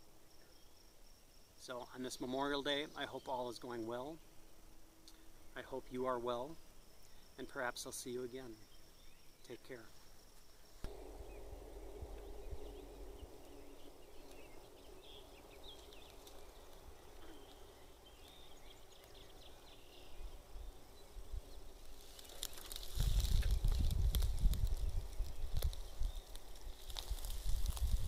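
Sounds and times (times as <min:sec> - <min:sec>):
bird chirps: 0:10.9 - 0:24.5
low steady rumble: 0:10.9 - 0:28.0.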